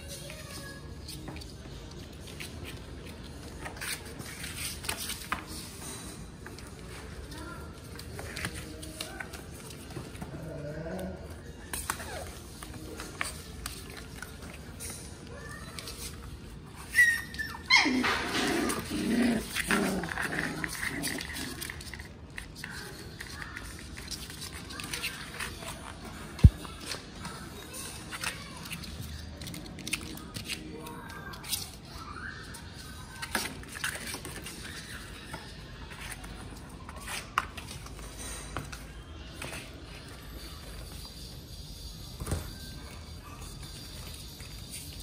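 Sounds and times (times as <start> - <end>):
puppies growling: 10.2 - 11.4, 17.4 - 22.1
puppy yipping: 16.8 - 18.9.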